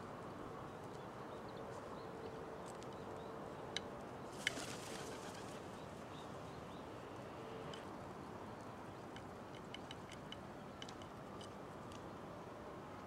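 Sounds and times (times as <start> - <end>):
steady low hiss: 0.0 - 13.0
crow wingbeats: 4.4 - 5.7.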